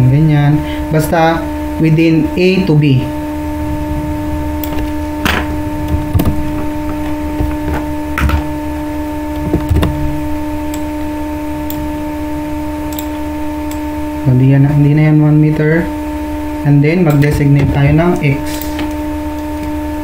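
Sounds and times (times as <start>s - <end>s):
electrical hum: 0.0s - 20.0s
sharp clicks: 12.9s - 13.8s.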